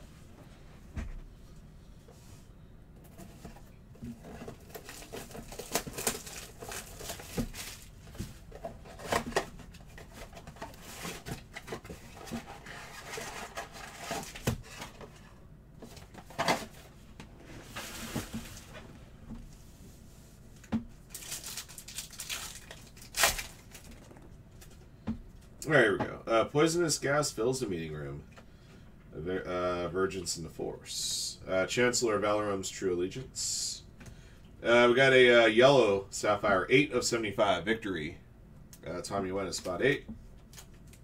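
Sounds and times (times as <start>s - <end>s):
foil pack tearing: 4.6s - 7.9s, 21.1s - 24.1s.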